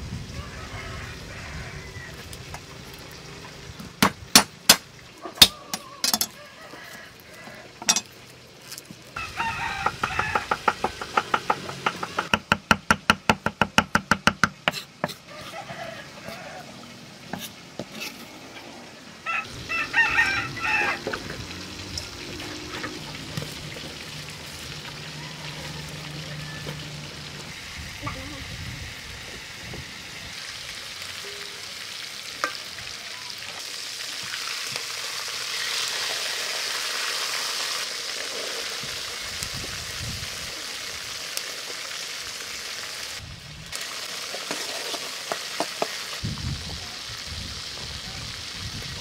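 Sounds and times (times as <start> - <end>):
cleaver chopping on wooden block: 4.0 - 4.8, 10.1 - 15.2.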